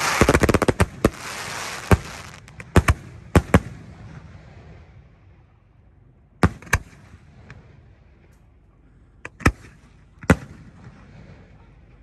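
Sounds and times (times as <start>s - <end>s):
fireworks bangs: 0.0s - 3.7s.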